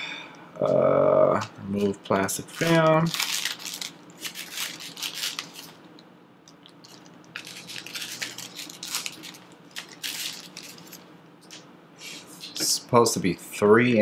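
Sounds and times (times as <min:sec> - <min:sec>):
plastic film crinkling: 0:01.8 - 0:05.8, 0:06.7 - 0:11.6.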